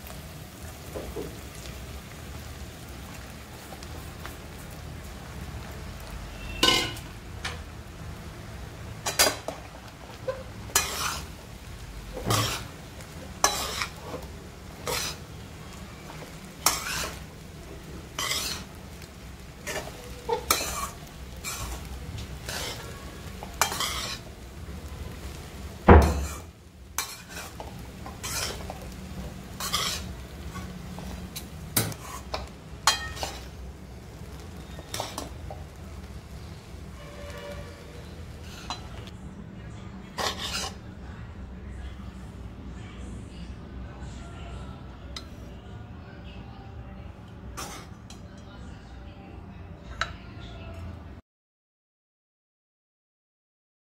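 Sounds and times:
spoon scraping and knocking pan: 9.0s - 11.3s, 12.1s - 12.7s, 13.4s - 15.2s, 16.1s - 17.2s, 18.1s - 18.7s, 19.6s - 24.2s, 26.0s - 28.9s, 29.5s - 33.5s, 34.7s - 35.7s, 38.4s - 39.0s.

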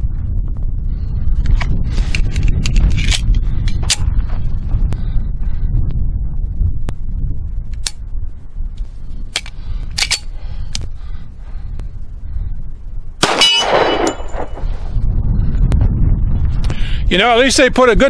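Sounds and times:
pistol metallic clicks: 7.8s - 8.0s, 9.3s - 10.9s
steel plate ringing: 13.2s - 14.6s
pistol shot: 13.2s - 14.7s.

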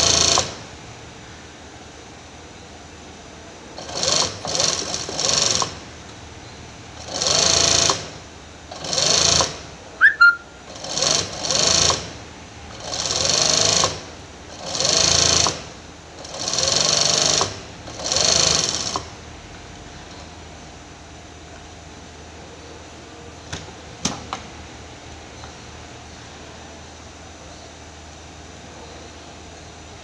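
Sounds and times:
sewing machine stitching: 0.0s - 0.6s, 3.8s - 5.8s, 7.0s - 9.7s, 10.7s - 19.1s
sharp high squeak: 10.0s - 10.5s.

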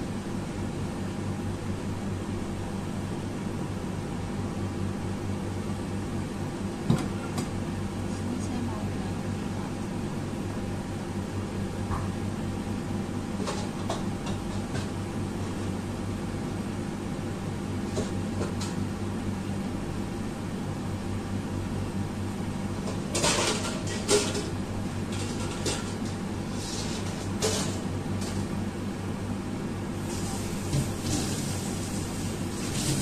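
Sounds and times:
water boiling in pan: 30.0s - 33.0s.

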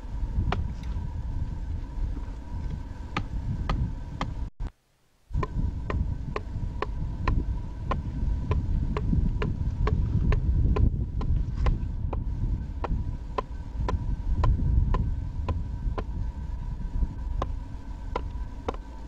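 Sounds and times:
low rumble: 0.0s - 4.6s, 5.3s - 19.0s
faint hum: 0.0s - 19.0s
adze chopping wood: 5.4s - 16.1s.

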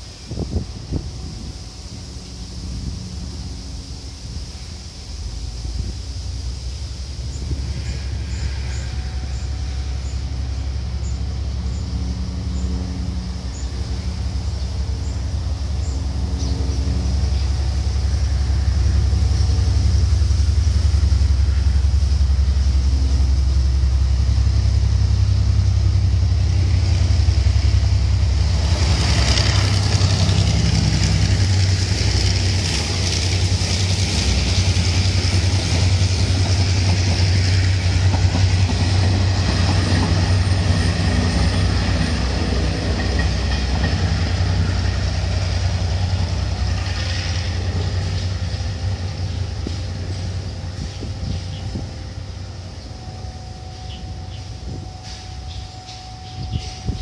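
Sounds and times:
diesel locomotive engine drone: 0.0s - 57.0s
train wagons rolling on rails: 0.0s - 57.0s.

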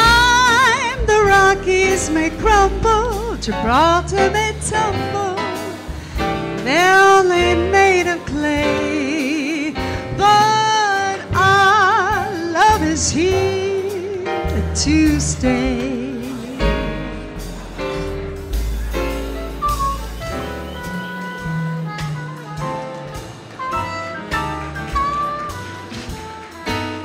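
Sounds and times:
woman singing jazz with vibrato: 0.0s - 17.4s
jazz band playing: 0.0s - 27.0s.

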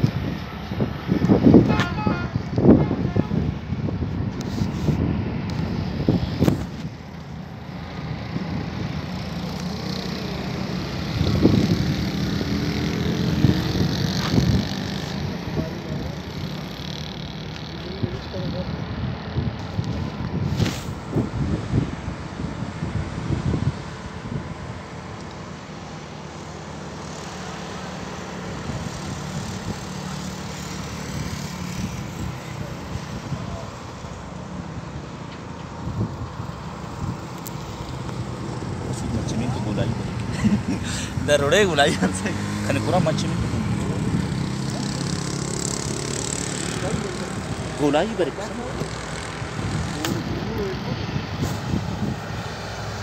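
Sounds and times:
heavy truck diesel engines droning: 0.0s - 53.0s
vehicle engine running: 40.8s - 50.9s.

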